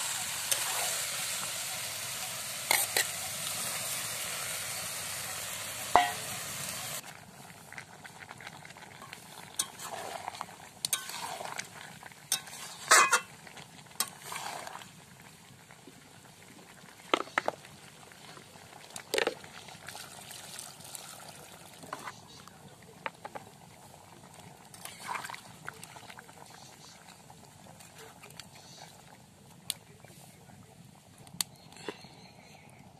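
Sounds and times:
loud hiss of frying: 0.0 - 7.0
soft sizzle: 0.0 - 32.9
metal spatula scraping a pan: 2.6 - 3.3, 10.9 - 11.6, 12.3 - 13.3.

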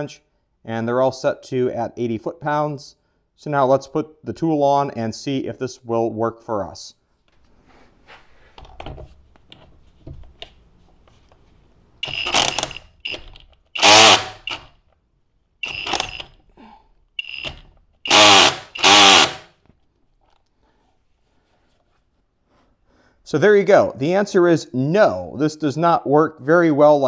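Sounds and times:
rotary hammer motor whine: 12.0 - 13.2, 13.8 - 14.6, 15.6 - 16.3, 17.2 - 19.5.

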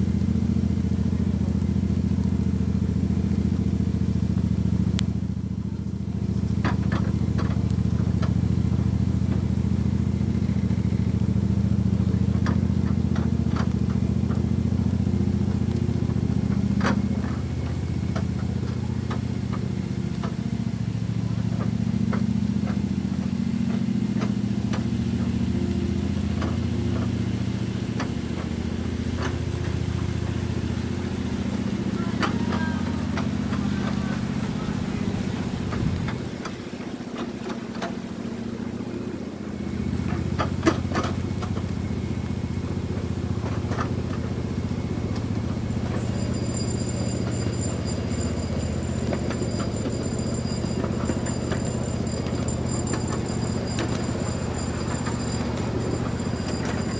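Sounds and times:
small train engine running: 0.0 - 56.9
running gear clicks and knocks: 10.2 - 25.5, 35.6 - 56.9.

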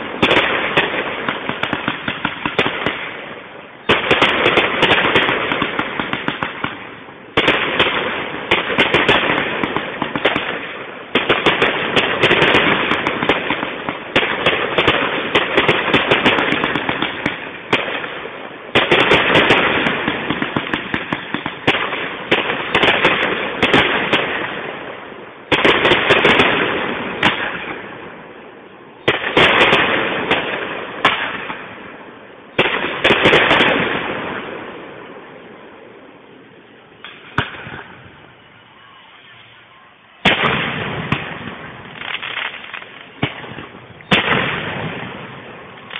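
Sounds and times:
firework shells bursting and crackling: 0.0 - 45.9.

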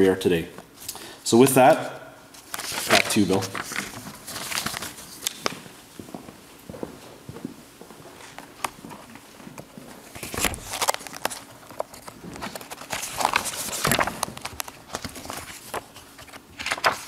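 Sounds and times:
paper rustling: 2.4 - 5.5, 10.0 - 17.0.

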